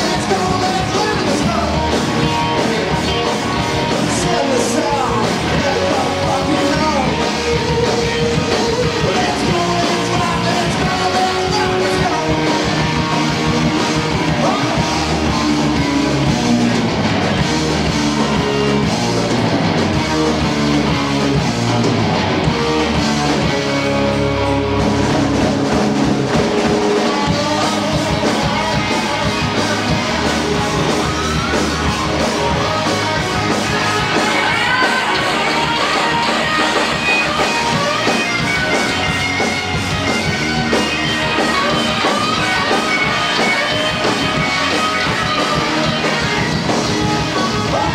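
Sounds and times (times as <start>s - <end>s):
person singing: 0.0s - 16.3s, 26.5s - 47.9s
bass guitar: 0.0s - 47.9s
drum kit: 0.0s - 47.9s
electric guitars: 0.0s - 47.9s.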